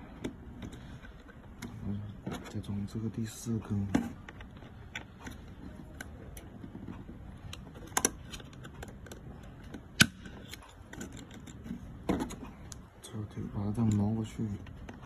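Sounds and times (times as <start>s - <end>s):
sharp plastic snaps: 3.8s - 12.9s.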